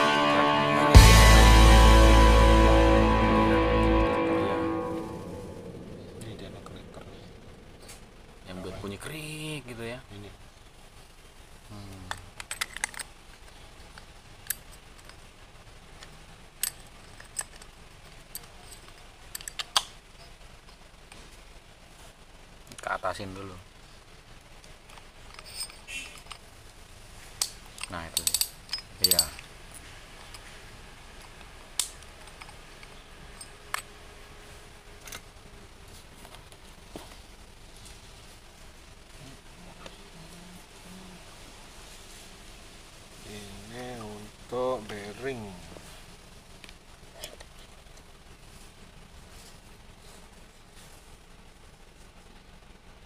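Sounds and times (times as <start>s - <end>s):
metallic clicks of small parts: 12.0s - 15.3s, 16.0s - 20.8s, 24.6s - 26.5s, 27.4s - 30.5s, 31.2s - 33.9s.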